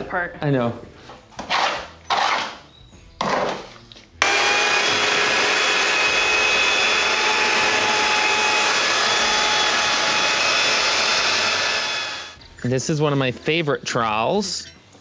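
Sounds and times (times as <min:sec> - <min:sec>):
electric paddle mixer whine: 0:04.2 - 0:12.4.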